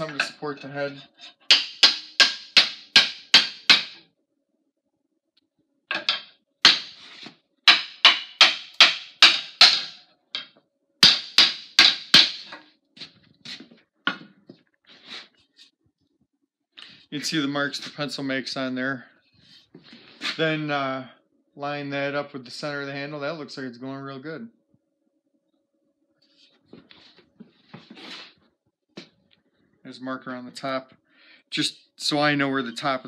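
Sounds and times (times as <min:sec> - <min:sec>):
mallet knocking wooden handle: 0:01.5 - 0:04.0, 0:05.9 - 0:06.9, 0:07.7 - 0:12.6.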